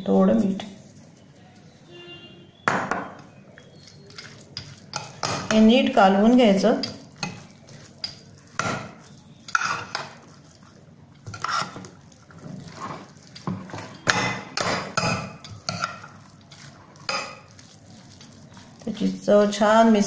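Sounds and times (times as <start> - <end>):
spoon scraping glass dish: 6.8 - 10.4, 11.2 - 11.9, 12.6 - 17.8.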